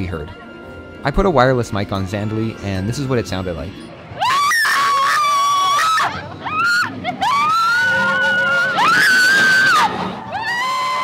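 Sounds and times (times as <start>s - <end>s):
woman screaming: 4.2s - 11.0s.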